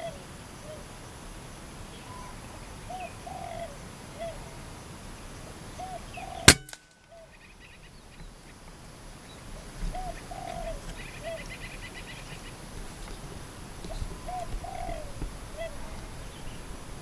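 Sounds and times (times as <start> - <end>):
doves cooing: 2.1 - 4.7, 5.8 - 7.3, 9.6 - 17.0
air rifle shot: 6.5 - 6.9.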